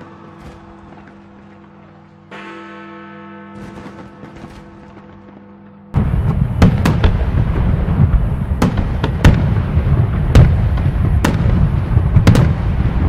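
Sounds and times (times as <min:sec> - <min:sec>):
rumble of bursting fireworks: 0:03.6 - 0:13.0
sharp loud firework cracks: 0:06.0 - 0:13.0.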